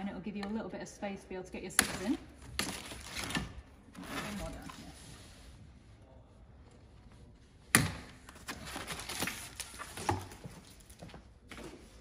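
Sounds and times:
plastic and cardboard packaging rustling: 0:02.6 - 0:05.4, 0:08.2 - 0:12.0.

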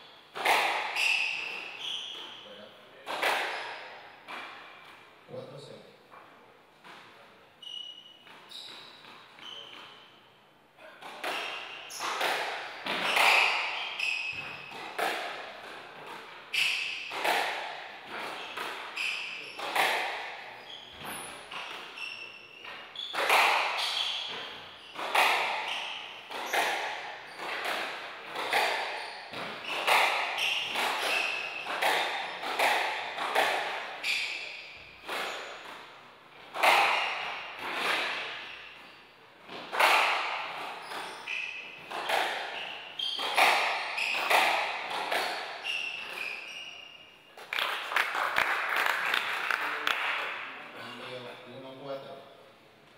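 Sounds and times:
shoes squeaking on wooden floor: 0:00.1 - 0:02.6, 0:06.8 - 0:10.2, 0:11.1 - 0:47.4
squash ball hit by racquets: 0:00.3 - 0:02.3, 0:03.0 - 0:04.7, 0:11.0 - 0:22.0, 0:23.0 - 0:38.5, 0:39.4 - 0:46.4.

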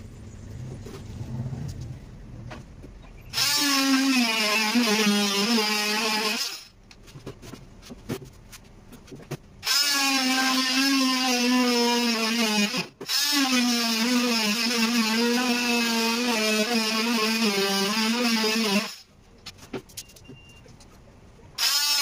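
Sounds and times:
power tool whining: 0:03.2 - 0:06.7, 0:21.6 - 0:22.0.

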